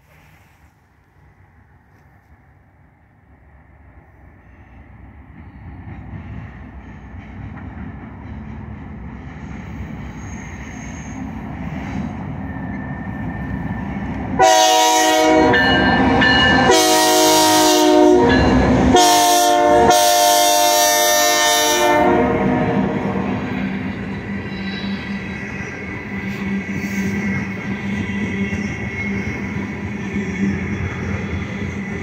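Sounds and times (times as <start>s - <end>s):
diesel locomotives rumbling: 0.0s - 32.0s
locomotive air horn blasts: 14.4s - 23.5s.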